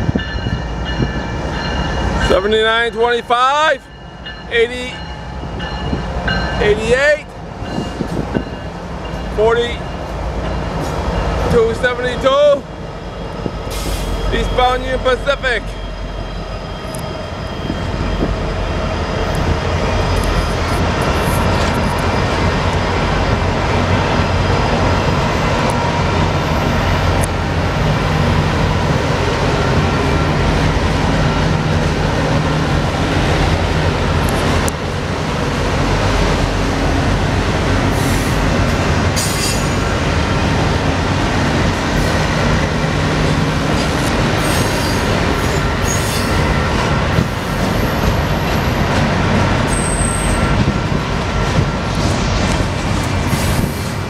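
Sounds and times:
freight train wheels rumbling on rail: 0:00.0 - 0:54.0
high wheel squeals: 0:13.0 - 0:22.4, 0:44.3 - 0:46.6, 0:49.7 - 0:50.6.

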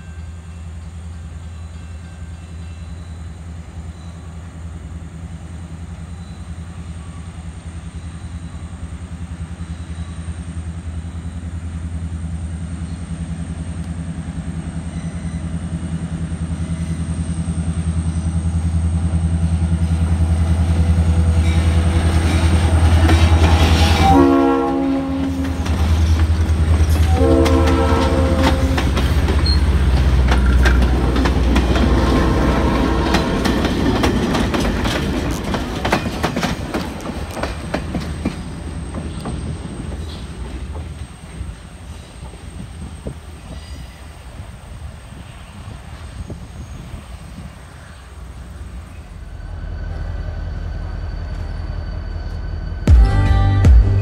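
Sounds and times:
diesel locomotive engine drone: 0:00.0 - 0:54.0
train wheels clickety-clack: 0:20.8 - 0:44.0
train horn blasts: 0:21.2 - 0:26.1, 0:26.9 - 0:29.6.

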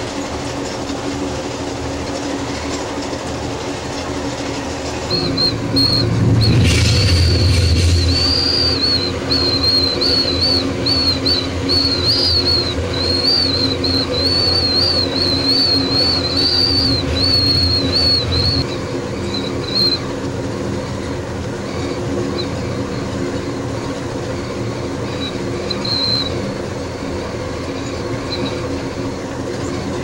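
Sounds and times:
high wavering wheel squeal: 0:00.0 - 0:30.0
train rumbling on rails: 0:00.0 - 0:30.0.

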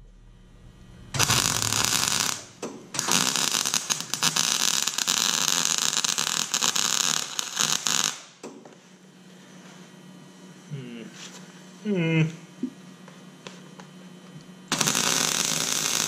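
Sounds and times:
welder arc crackling: 0:00.0 - 0:08.4, 0:14.7 - 0:16.0.

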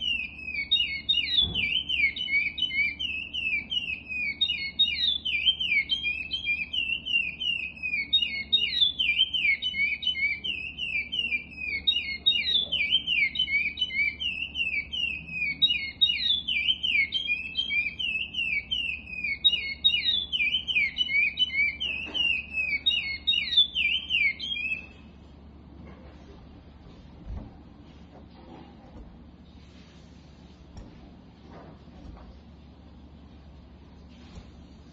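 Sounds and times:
finch singing whistled notes: 0:00.0 - 0:25.1.

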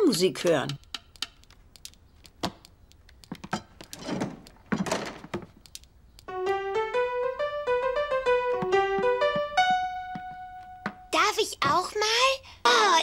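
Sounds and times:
light handling clicks and knocks: 0:00.4 - 0:06.3.

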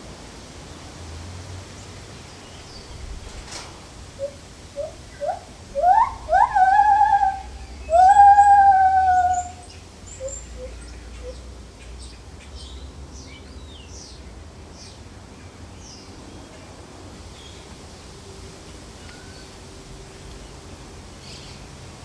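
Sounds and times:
gibbon hooting: 0:04.2 - 0:09.6.

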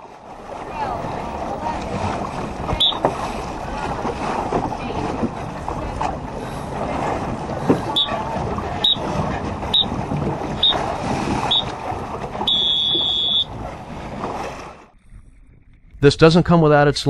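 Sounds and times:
water noise: 0:00.0 - 0:17.0
wind: 0:00.0 - 0:17.0
electronic beeper beeping: 0:02.8 - 0:03.0, 0:12.5 - 0:13.5.

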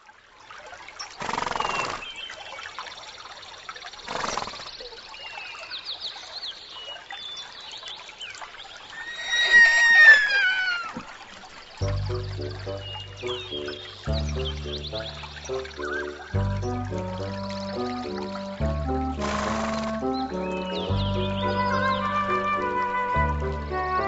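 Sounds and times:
birds chirping: 0:08.3 - 0:24.0
horse whinnying: 0:08.9 - 0:11.1
insects chirping: 0:08.9 - 0:18.6.

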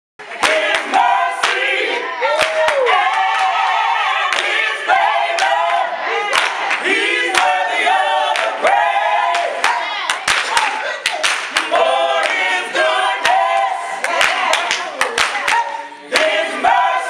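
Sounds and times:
sharp claps: 0:00.2 - 0:01.7, 0:06.3 - 0:07.6, 0:09.3 - 0:13.4, 0:14.0 - 0:15.6
choir singing: 0:00.2 - 0:17.0.

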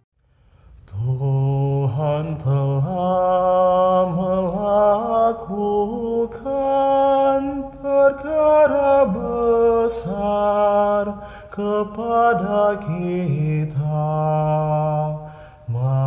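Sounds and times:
man singing a chant: 0:00.9 - 0:16.0.

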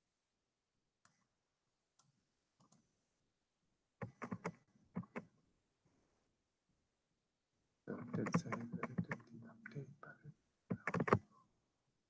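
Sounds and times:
keyboard keystrokes: 0:08.0 - 0:09.2, 0:10.7 - 0:11.2.

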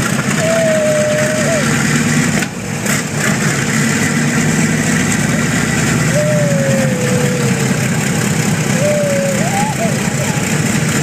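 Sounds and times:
radial engines idling: 0:05.6 - 0:11.0.

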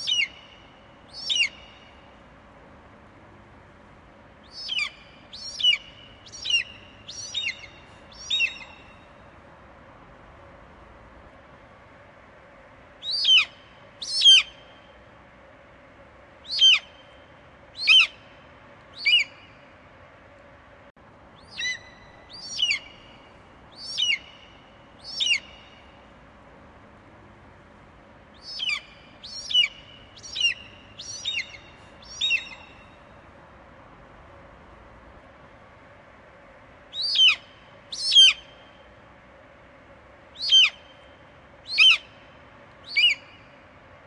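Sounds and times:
eagle calling: 0:00.0 - 0:00.6, 0:01.2 - 0:01.9, 0:04.4 - 0:09.0, 0:13.0 - 0:14.6, 0:16.4 - 0:17.0, 0:17.8 - 0:18.2, 0:19.0 - 0:19.6, 0:21.4 - 0:25.8, 0:28.4 - 0:32.9, 0:36.9 - 0:38.6, 0:40.4 - 0:41.0, 0:41.6 - 0:42.2, 0:42.8 - 0:43.5.

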